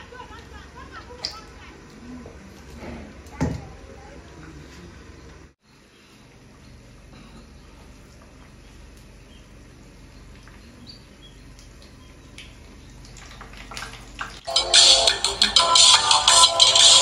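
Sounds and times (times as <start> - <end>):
loud music: 14.4 - 17.0.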